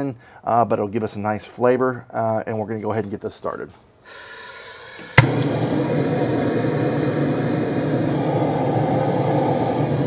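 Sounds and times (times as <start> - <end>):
propane torch hissing: 4.0 - 10.0.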